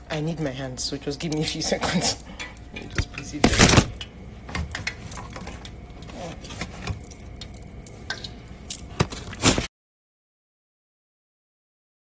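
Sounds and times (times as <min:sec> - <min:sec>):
low steady hum: 0:00.0 - 0:09.7.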